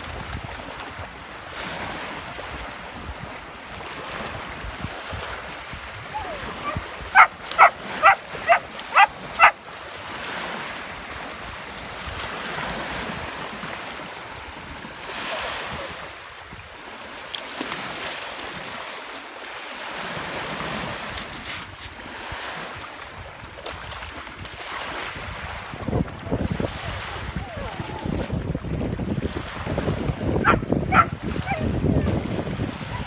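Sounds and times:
wind buffeting microphone: 0.0s - 9.6s, 23.8s - 33.0s
lake waves lapping on pebbles: 0.0s - 33.0s
dog barking: 6.2s - 9.6s, 30.4s - 32.0s.

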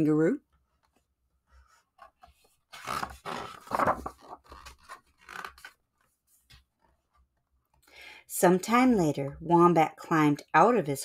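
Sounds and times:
book page turning: 0.8s - 7.3s.

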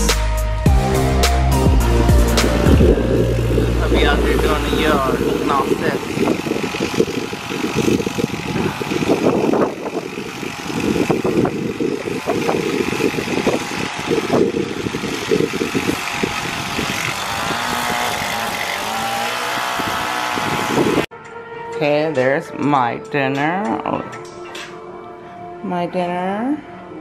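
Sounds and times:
string trimmer engine running: 0.7s - 21.1s
trimmer line rattling: 2.3s - 21.1s.

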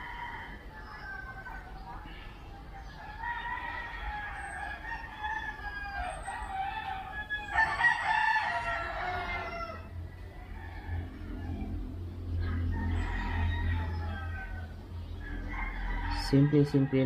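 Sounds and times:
rooster crowing: 0.0s - 1.7s, 3.0s - 17.0s.

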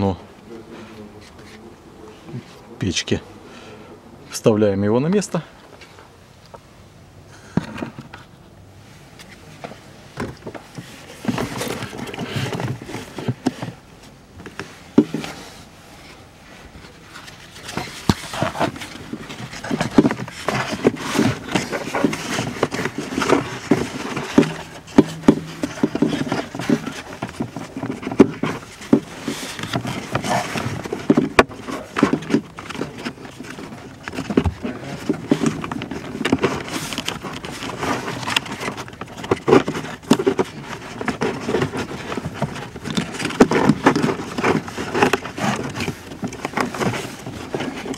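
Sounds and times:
paper rustling against plastic: 10.4s - 47.9s.

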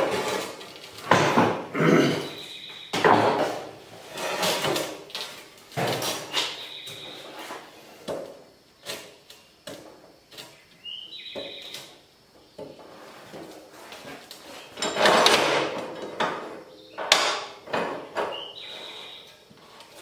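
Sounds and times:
steel scraping along bench: 3.4s - 5.0s.

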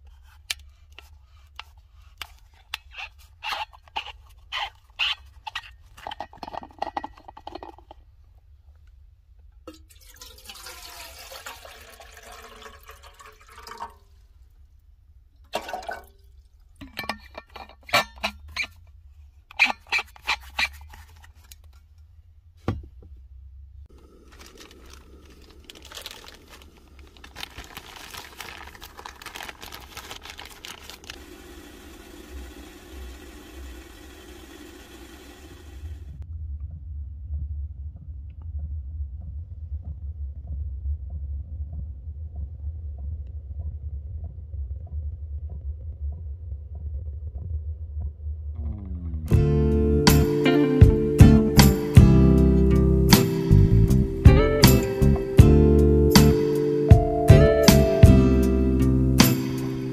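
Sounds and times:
water gurgling into kettle: 9.7s - 14.1s, 15.5s - 17.2s, 30.7s - 36.0s
plastic bag crinkling: 23.9s - 31.3s.

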